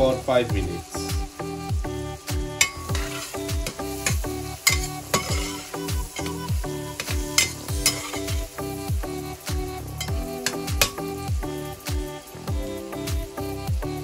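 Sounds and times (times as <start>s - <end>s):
onions sizzling in butter: 0.0s - 14.0s
music with deep bass beat: 0.5s - 14.0s
metal spoon scraping pan: 2.6s - 8.5s, 10.0s - 11.0s.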